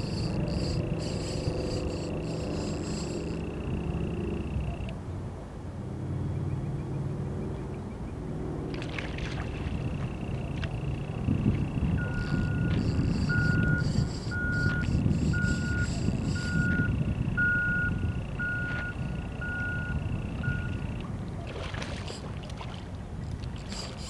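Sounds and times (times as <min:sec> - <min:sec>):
back-up alarm beeping: 0:10.9 - 0:21.0.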